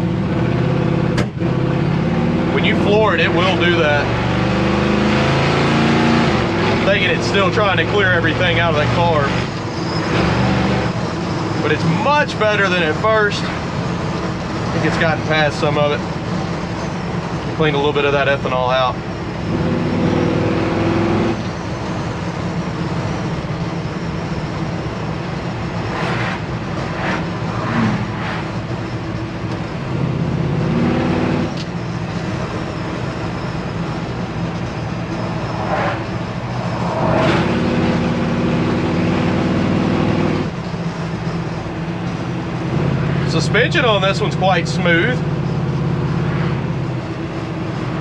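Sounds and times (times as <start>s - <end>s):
truck engine running: 0.0s - 48.0s.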